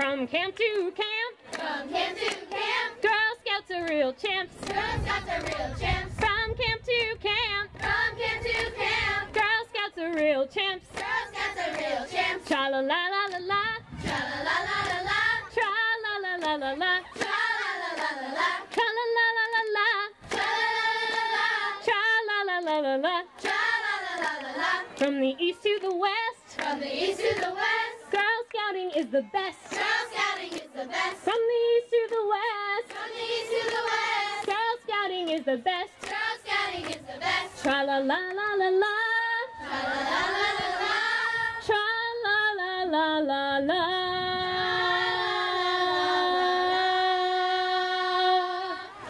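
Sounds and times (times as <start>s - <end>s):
woman singing: 0.0s - 1.4s, 3.0s - 4.6s, 9.3s - 11.0s, 12.4s - 13.8s, 15.3s - 17.5s, 18.6s - 20.2s, 21.8s - 23.5s, 25.0s - 26.8s, 28.1s - 30.0s, 31.2s - 32.9s, 34.3s - 36.2s, 37.5s - 39.6s, 41.6s - 48.9s
girls' chorus singing: 1.4s - 3.9s, 4.6s - 6.3s, 7.7s - 43.0s, 44.6s - 49.0s
hand clapping: 1.5s - 3.2s, 3.8s - 6.4s, 10.9s - 12.6s, 16.4s - 20.5s, 23.4s - 27.6s, 29.7s - 30.7s, 32.8s - 37.0s.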